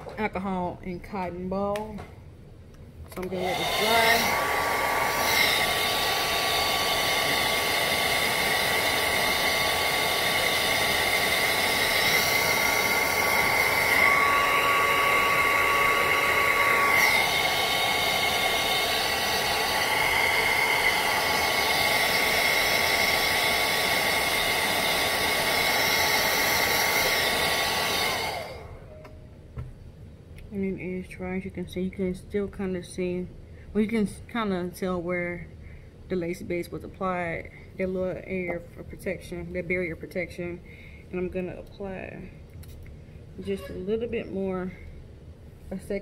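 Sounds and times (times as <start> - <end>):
hair dryer whining: 3.1 - 29.2.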